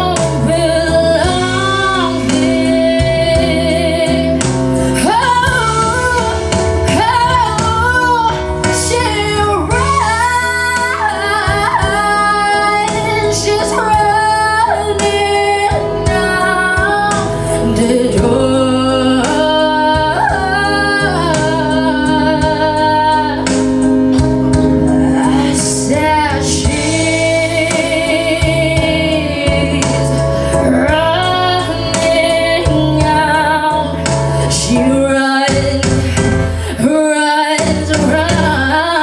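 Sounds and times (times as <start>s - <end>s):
instrumental accompaniment: 0.0s - 39.0s
woman singing into microphone: 0.0s - 39.0s.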